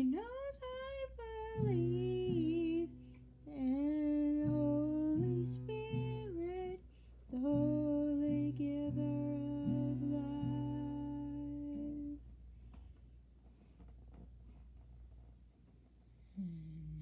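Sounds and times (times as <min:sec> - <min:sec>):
woman humming: 0:16.3 - 0:17.0.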